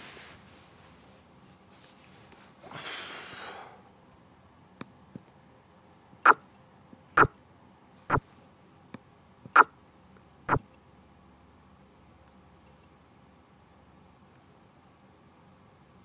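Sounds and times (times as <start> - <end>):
person sniffing: 2.7 - 3.8.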